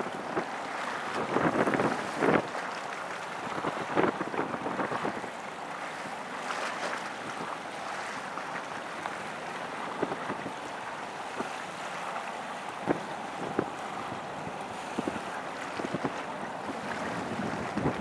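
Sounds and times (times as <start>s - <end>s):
wind on microphone: 0.0s - 2.7s, 3.4s - 5.4s, 9.9s - 10.6s, 12.7s - 18.0s
sea water lapping: 0.0s - 18.0s.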